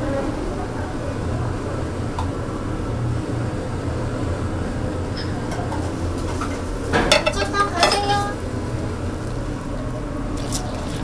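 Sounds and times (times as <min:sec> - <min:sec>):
room ventilation hum: 0:00.0 - 0:11.0
tableware clinking: 0:06.5 - 0:08.2.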